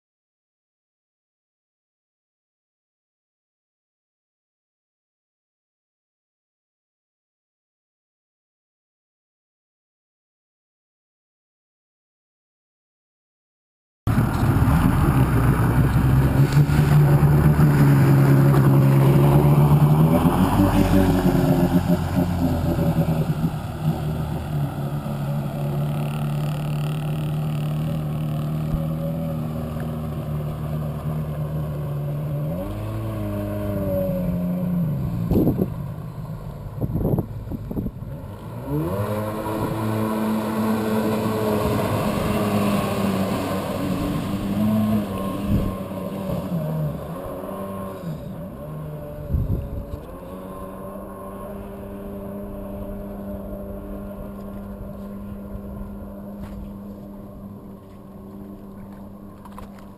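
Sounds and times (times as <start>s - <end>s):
jet ski engine revving: 14.1s - 59.9s.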